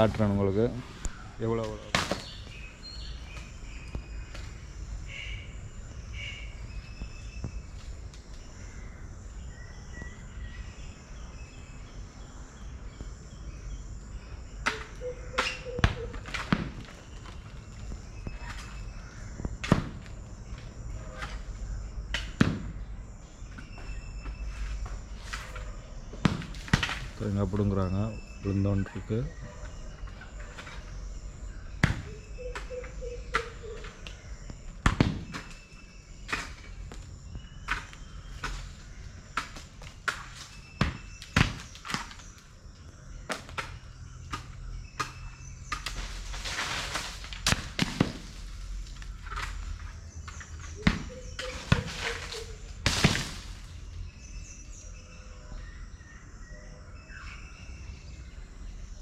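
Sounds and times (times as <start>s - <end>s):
coconuts thudding on ground: 1.6s - 2.6s, 14.6s - 20.2s, 22.1s - 22.8s, 26.1s - 27.2s, 31.7s - 32.7s, 33.3s - 42.4s, 43.2s - 53.7s
rustling noise: 45.9s - 50.0s.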